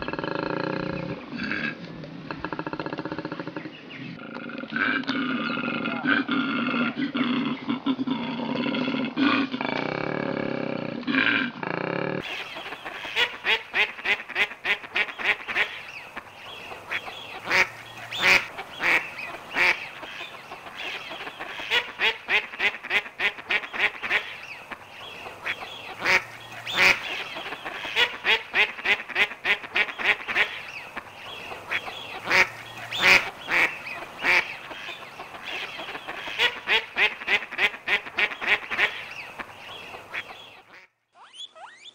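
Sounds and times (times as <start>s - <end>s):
duck quacking: 12.2s - 40.9s.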